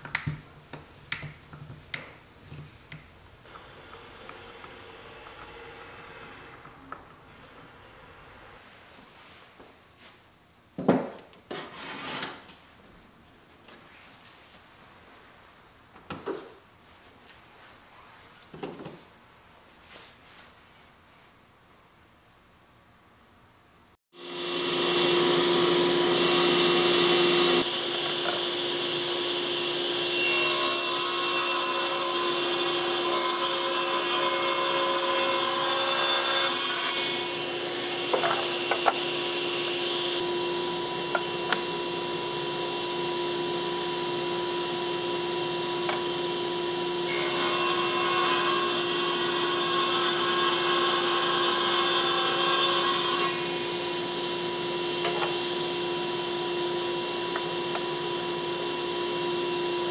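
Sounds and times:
table saw cutting wood: 3.5s - 8.6s, 24.2s - 59.9s.

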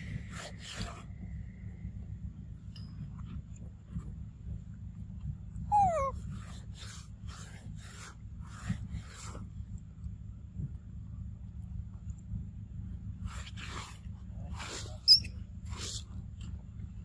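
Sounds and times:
steady low rumble: 0.0s - 17.0s
harsh rasping animal calls: 5.7s - 6.2s.

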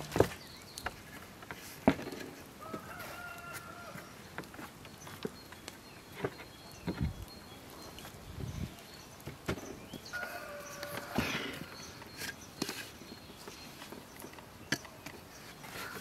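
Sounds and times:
rooster crowing: 2.6s - 4.1s, 10.1s - 12.0s.

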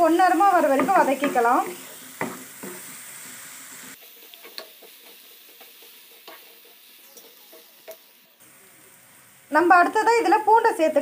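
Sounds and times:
onions sizzling in hot oil: 0.0s - 11.0s
wooden spatula scraping: 0.2s - 8.1s.

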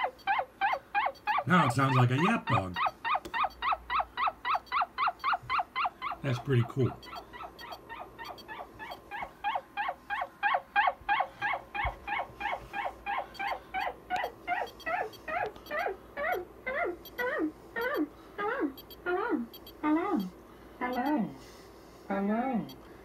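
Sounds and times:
high-pitched chirps from radio speaker: 6.3s - 9.0s.

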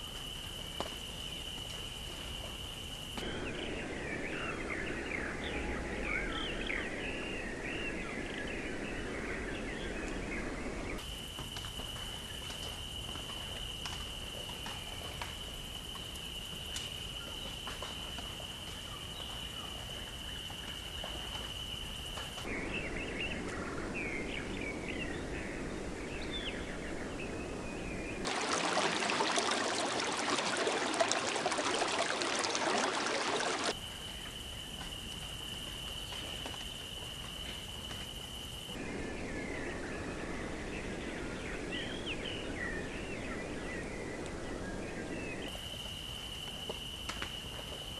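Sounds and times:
rain-like rushing noise: 28.2s - 33.8s.

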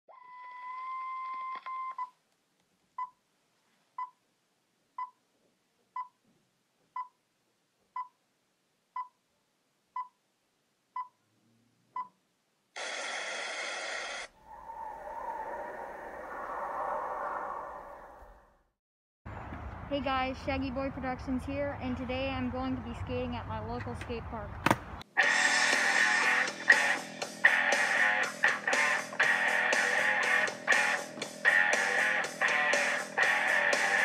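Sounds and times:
swelling sound with low hum: 14.3s - 18.7s.

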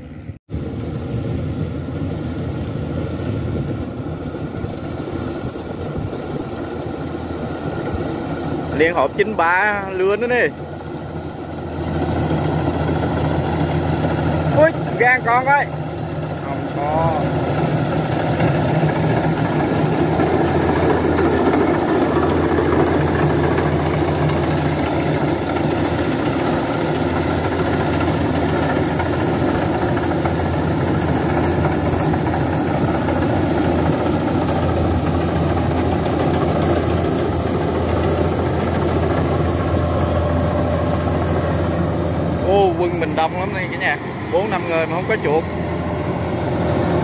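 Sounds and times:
combine harvester engine drone: 0.0s - 47.0s.

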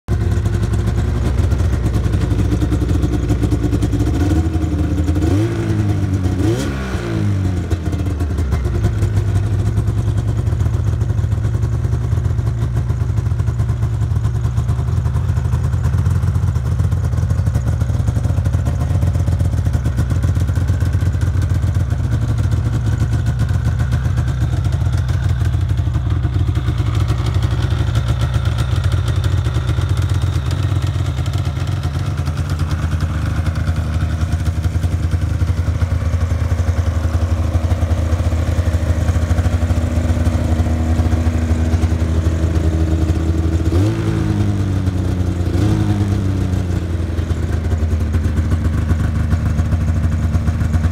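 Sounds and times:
snowmobile engine idling: 0.1s - 50.9s.

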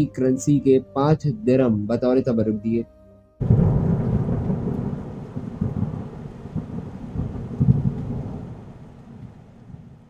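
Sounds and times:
thunder rumbling: 3.4s - 10.0s.

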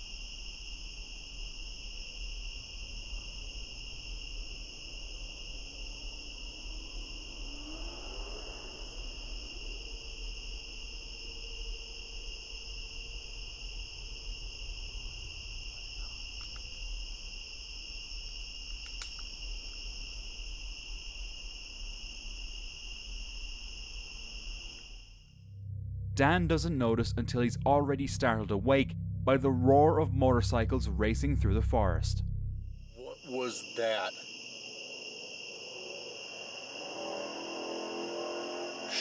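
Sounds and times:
crickets and insects trilling: 0.0s - 32.1s, 32.8s - 39.0s
faint clicks: 16.3s - 16.8s, 18.6s - 19.8s
faint low hum rising: 25.4s - 33.0s.

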